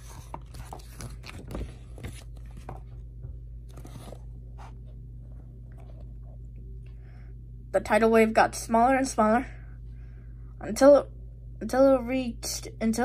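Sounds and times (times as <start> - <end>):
paper pages rustling: 0.0 - 5.0
low steady hum: 0.0 - 13.0.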